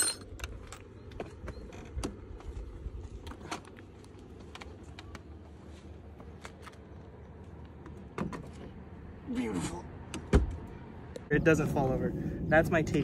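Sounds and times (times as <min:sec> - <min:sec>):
low steady rumble: 0:10.9 - 0:13.0.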